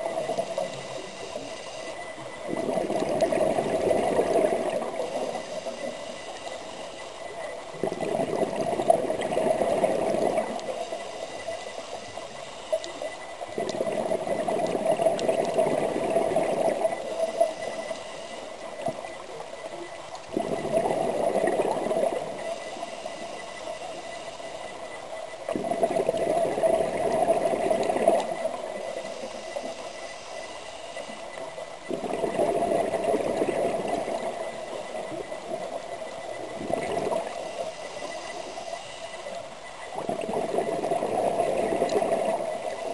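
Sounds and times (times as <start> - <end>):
regulator bubbling underwater: 0.0 - 30.0, 31.0 - 42.9
diver breathing: 0.2 - 2.2, 28.8 - 31.4.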